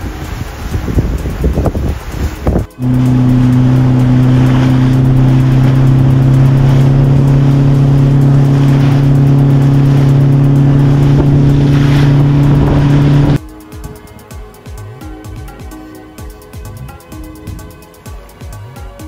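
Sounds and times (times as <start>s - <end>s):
engine droning: 2.7s - 13.4s.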